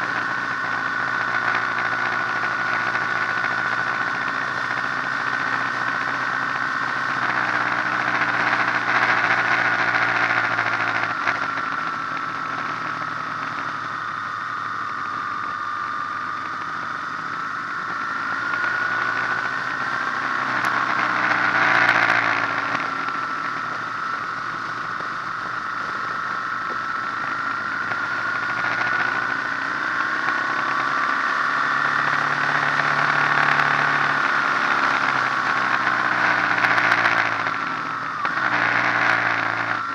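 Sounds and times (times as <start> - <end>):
motorcycle engine running: 0.0 - 39.9
road and wind noise: 0.0 - 39.9.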